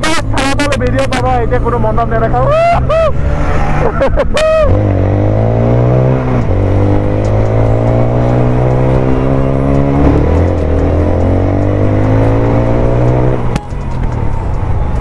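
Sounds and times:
motorcycle engine revving: 3.2 - 13.5.

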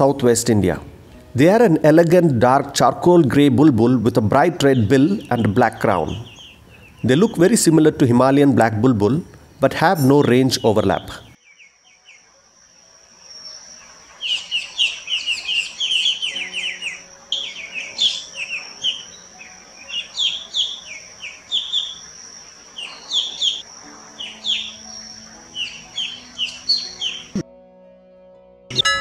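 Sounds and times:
bird chattering calls: 14.2 - 27.4
thin high-pitched tone: 28.7 - 29.0.

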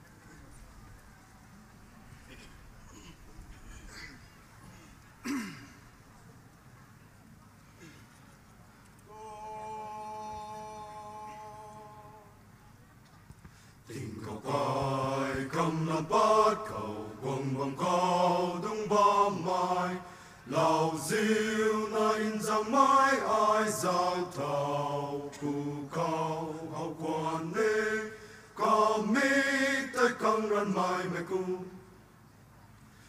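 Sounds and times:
mixed choir singing: 9.1 - 12.3, 13.9 - 32.0.

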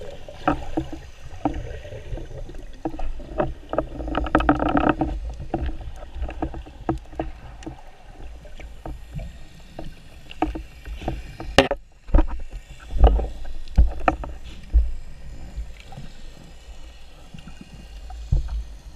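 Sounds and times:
underwater rush of water: 0.0 - 18.9.

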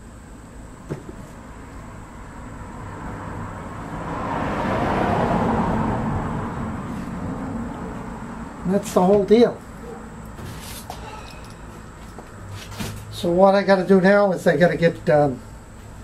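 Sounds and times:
passing vehicle road noise: 1.4 - 8.8.

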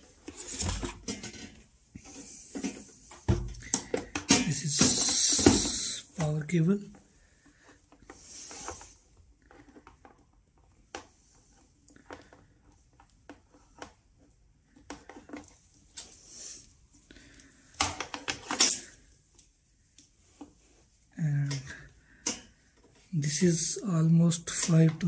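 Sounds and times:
cable coiling rustling and clicking: 0.0 - 25.0.

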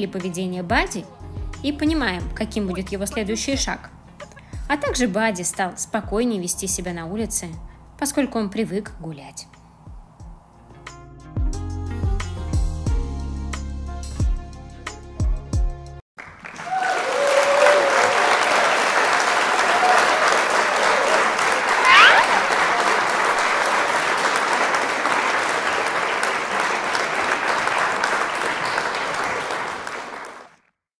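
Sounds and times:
crowd applauding: 16.2 - 30.7
rising whistle: 21.7 - 22.6
people shouting: 21.7 - 22.8.

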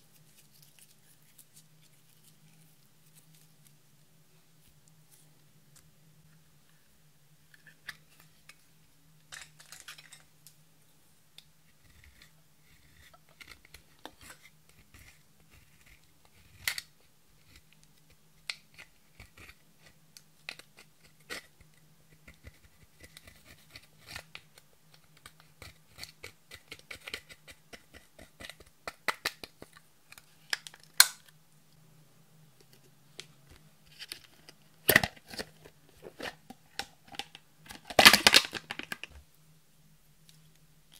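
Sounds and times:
faint low hum: 0.0 - 40.9
powder scratching and tapping: 11.9 - 30.7.

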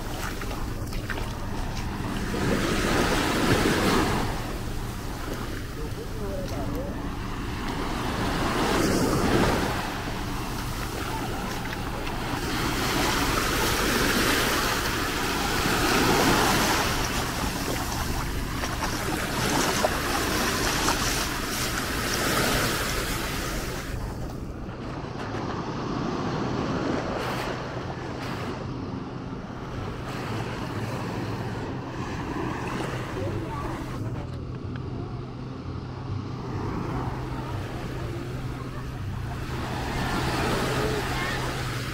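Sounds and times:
waves breaking on sand and rocks: 0.0 - 34.2, 34.9 - 41.9.

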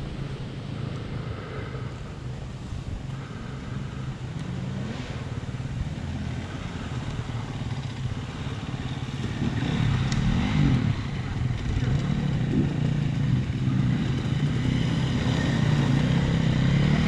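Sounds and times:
another dirt bike approaching: 0.0 - 17.0
dirt bike idling: 0.0 - 17.0.

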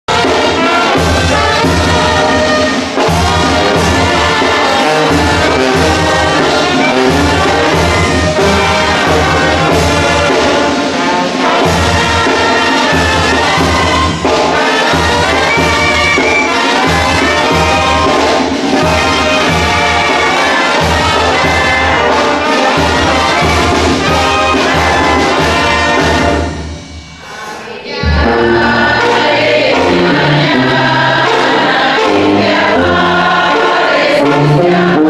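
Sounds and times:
trumpets and clarinet melody: 0.1 - 35.0
sousaphone bass notes: 26.8 - 31.2.

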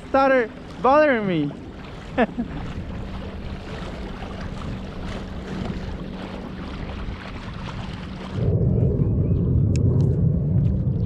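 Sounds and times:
water splashing against kayak hull: 0.0 - 8.6.

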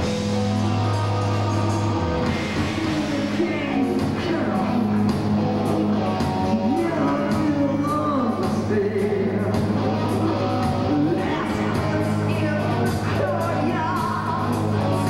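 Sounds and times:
gliding guitar lead line: 0.0 - 15.0
heavy metal band playing: 0.0 - 15.0
person singing: 0.6 - 5.4, 6.0 - 15.0.

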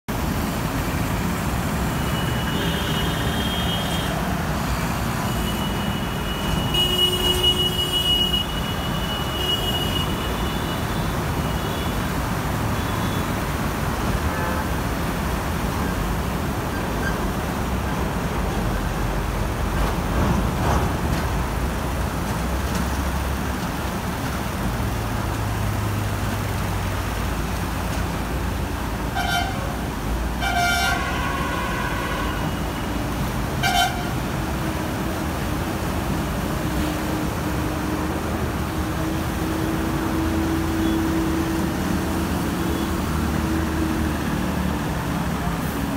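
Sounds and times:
vehicle horns honking: 2.0 - 4.2, 5.3 - 12.0, 29.1 - 29.7, 30.4 - 32.7, 33.6 - 34.2.

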